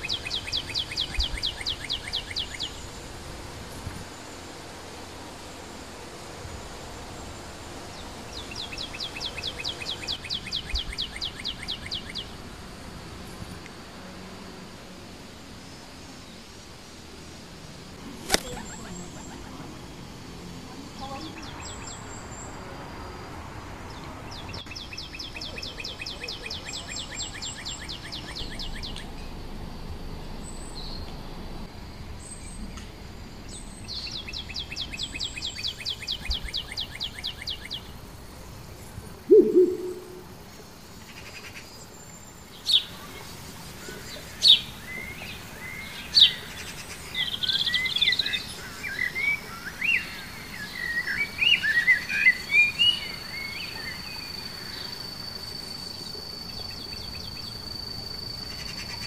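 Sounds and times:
bird chirping: 39.2 - 40.6
bird trills: 39.3 - 40.4
short low bird call: 39.3 - 40.4
sharp descending bird calls: 39.3 - 40.5.

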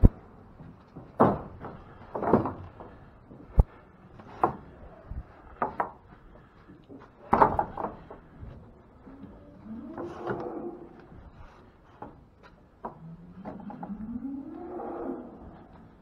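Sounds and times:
wooden gates knocking: 0.7 - 3.0, 7.2 - 8.3.

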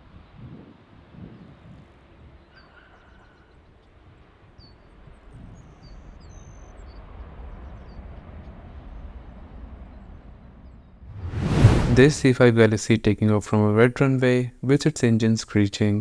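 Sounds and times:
small birds chirping: 2.3 - 8.2
jet engines rumbling at takeoff: 3.5 - 12.2.

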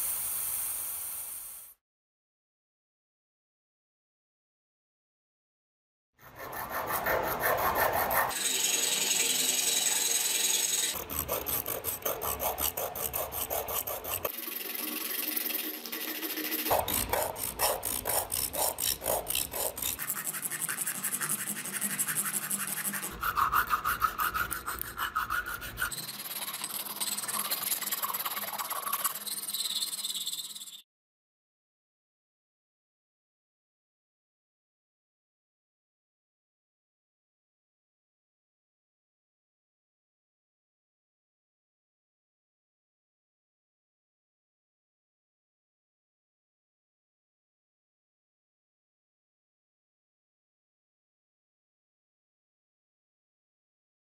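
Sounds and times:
sandpaper rasping on wood: 6.3 - 30.8.

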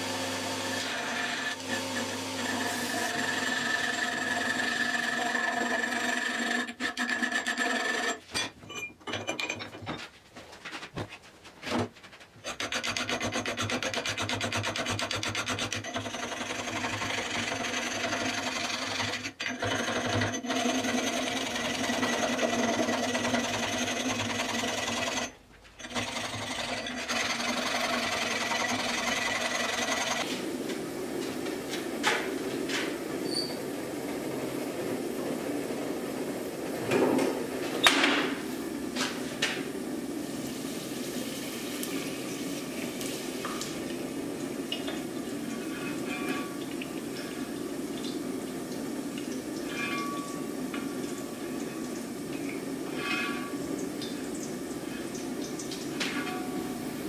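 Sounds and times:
file rasping on steel: 2.4 - 8.2.

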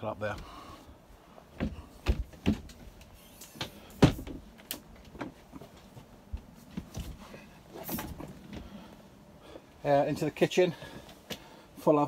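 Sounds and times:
knocks and thumps: 1.6 - 3.0, 3.6 - 5.7.

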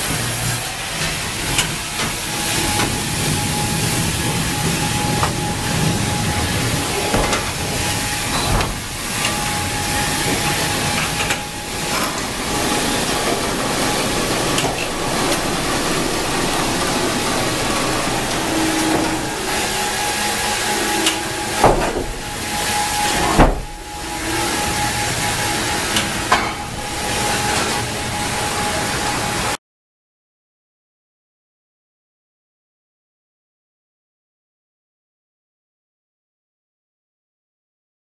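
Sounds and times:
sawmill machinery hiss: 0.0 - 29.6
thin constant whine: 0.0 - 29.6.

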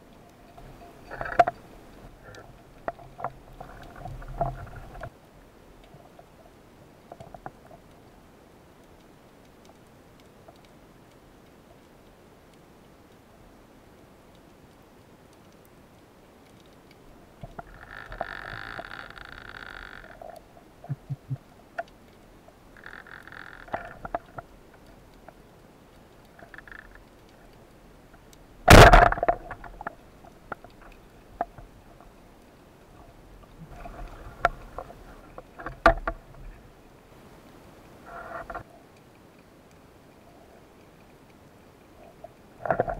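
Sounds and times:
underwater speargun crack: 28.7 - 29.9
clicks and knocks: 28.7 - 31.6.

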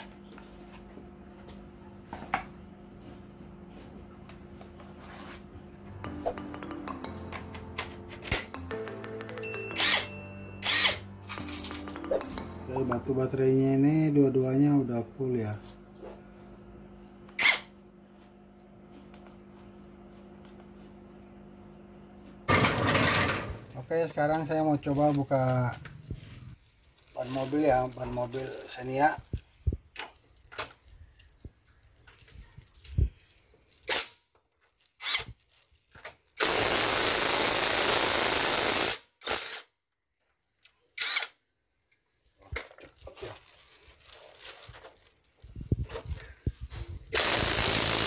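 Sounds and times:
steady low hum: 12.2 - 27.2
impact wrench hammering lug nut: 47.2 - 48.0.

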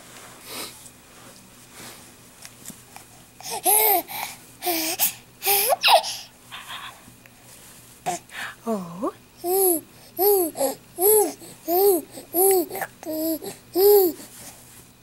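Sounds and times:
baby squealing happily: 5.5 - 6.2.

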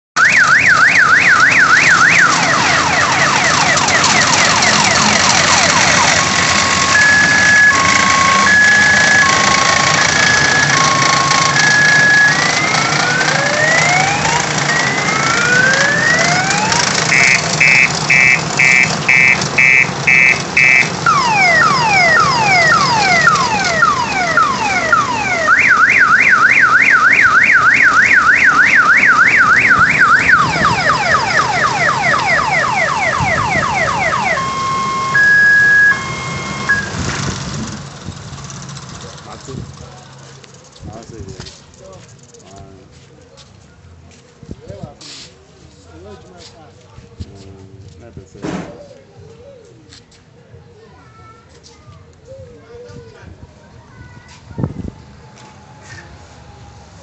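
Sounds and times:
electronic siren cycling tones: 0.2 - 37.1.

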